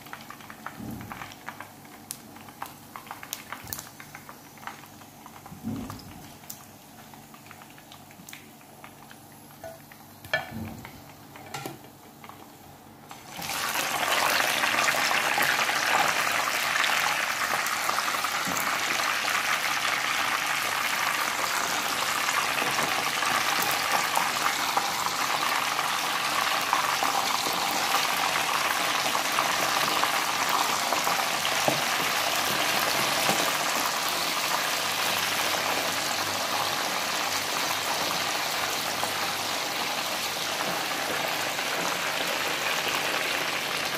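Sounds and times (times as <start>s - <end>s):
chicken sizzling in hot oil: 13.1s - 43.9s.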